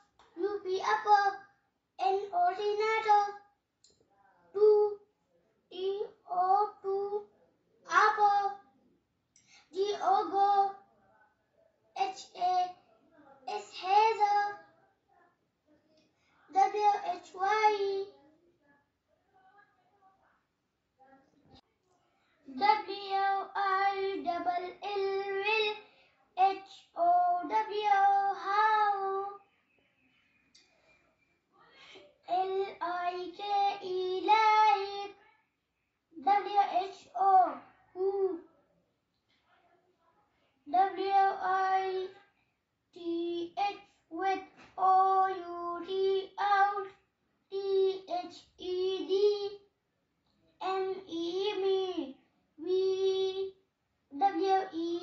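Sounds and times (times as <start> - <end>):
boy chanting from a book: 0.0 - 3.5, 4.5 - 5.1, 5.7 - 8.6, 9.7 - 10.9, 11.9 - 15.2, 16.5 - 18.2, 22.4 - 29.5, 32.3 - 35.2, 36.2 - 38.5, 40.6 - 42.2, 42.9 - 49.7, 50.6 - 55.0.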